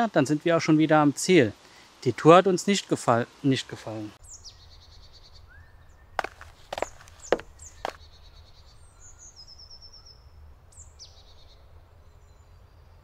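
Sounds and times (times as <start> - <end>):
small birds chirping: 4.2 - 13.0.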